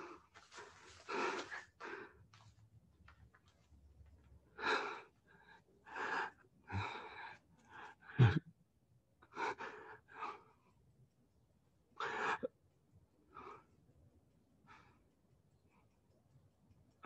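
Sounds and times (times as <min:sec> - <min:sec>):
person gasping breaths: 0:04.6 - 0:08.4.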